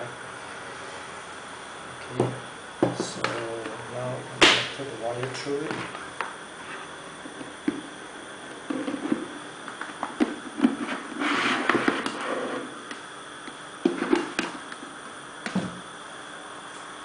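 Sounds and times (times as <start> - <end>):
cord rustling scrape: 10.7 - 12.8.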